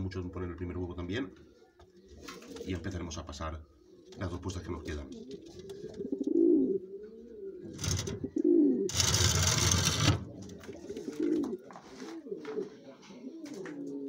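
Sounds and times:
pigeons cooing: 0.0 - 14.0
loud rustling: 8.9 - 10.3.

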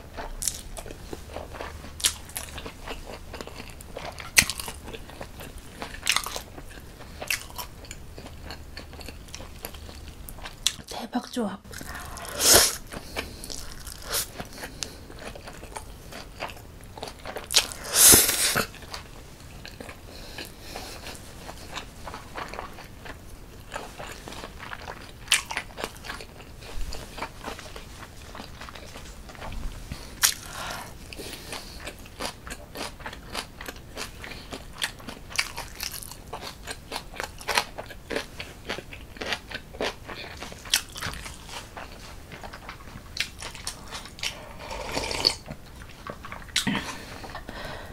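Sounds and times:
person chewing: 0.0 - 11.0, 11.7 - 47.9
person slurping noodles: 11.7 - 15.0, 17.6 - 18.7, 44.3 - 45.4.

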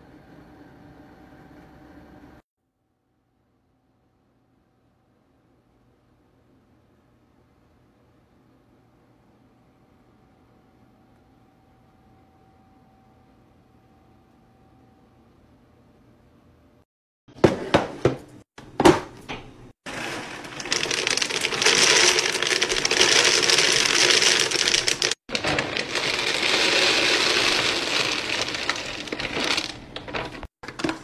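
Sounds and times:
dry kibble pouring into container: 19.9 - 30.5.

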